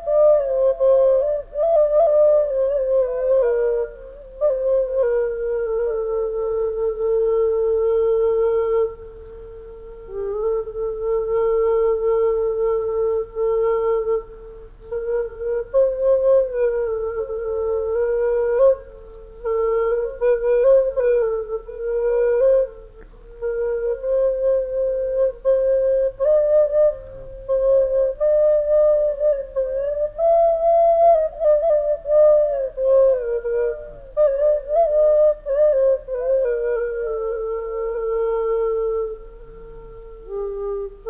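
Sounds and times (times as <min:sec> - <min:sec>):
slow flute-like melody: 0:00.0 - 0:41.0.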